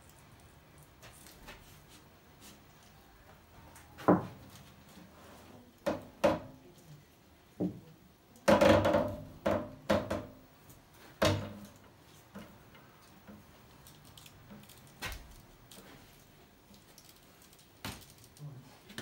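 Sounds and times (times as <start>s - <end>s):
hollow knocks and creaks: 4.0s - 4.5s, 8.5s - 10.4s.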